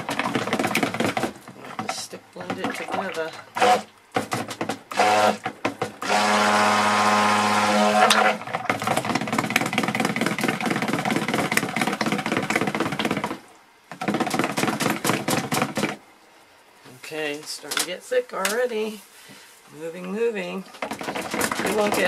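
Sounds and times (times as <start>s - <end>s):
stick blender running: 0.0s - 13.3s.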